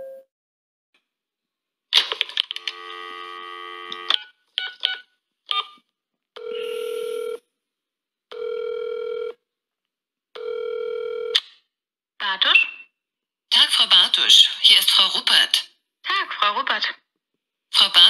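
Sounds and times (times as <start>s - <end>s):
telephone ringback tone: 6.4s - 7.4s, 8.3s - 9.4s, 10.4s - 11.3s.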